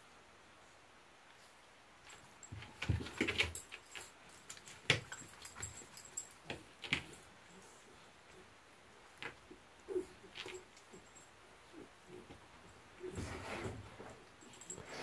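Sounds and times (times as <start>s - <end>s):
harness jingle: 2.1s - 7.7s, 10.0s - 15.0s.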